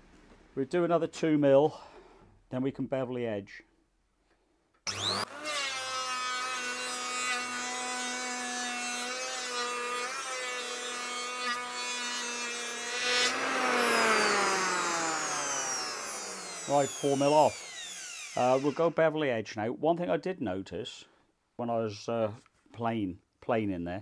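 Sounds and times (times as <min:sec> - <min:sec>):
electric hand planer whining: 0:04.9 - 0:18.8.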